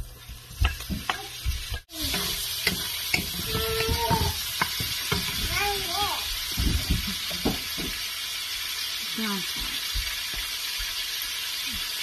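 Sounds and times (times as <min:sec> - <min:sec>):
meat sizzling in oil: 0:00.0 - 0:12.0
wooden spatula knocking: 0:00.6 - 0:05.7.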